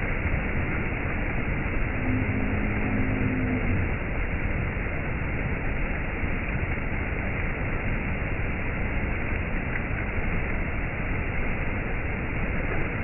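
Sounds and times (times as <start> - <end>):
waterfall rushing: 0.1 - 7.4.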